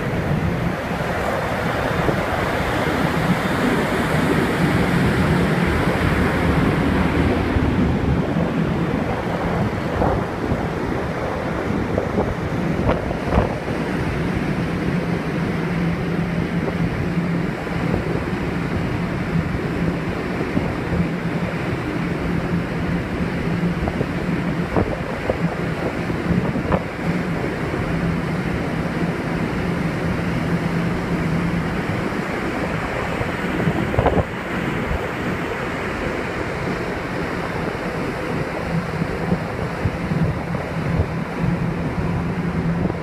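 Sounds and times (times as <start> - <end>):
low ship hum: 0.0 - 43.0
sea rushing: 0.0 - 43.0
wind on microphone: 0.0 - 43.0.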